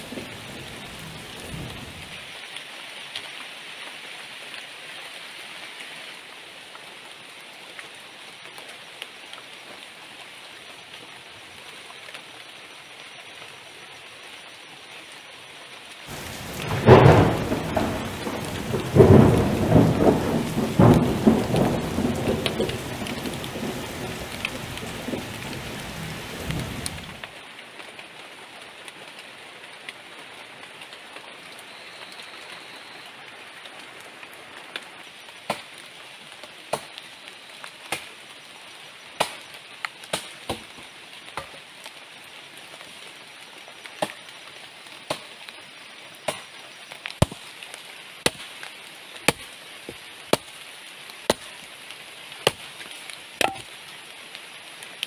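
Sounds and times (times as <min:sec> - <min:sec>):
heavy rain: 0:00.0 - 0:55.0
low thunder rumble: 0:16.1 - 0:27.2.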